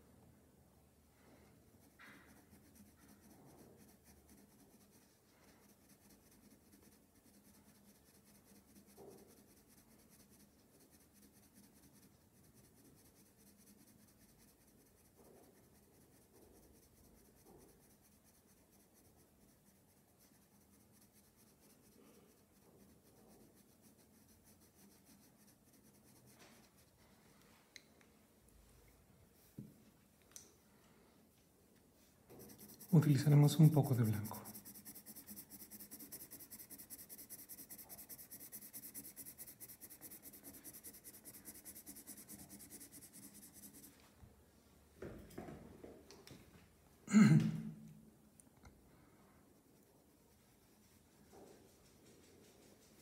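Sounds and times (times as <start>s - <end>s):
pencil scratching on paper: 1.7s - 27.0s, 32.3s - 44.0s.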